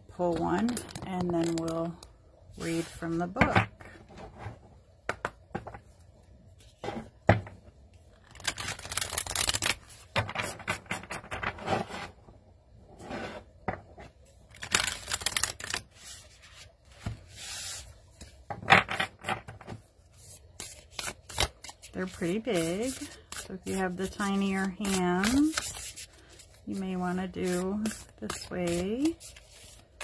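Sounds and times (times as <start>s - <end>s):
cards being shuffled: 0.3s - 2.0s, 8.1s - 11.6s, 14.5s - 30.0s.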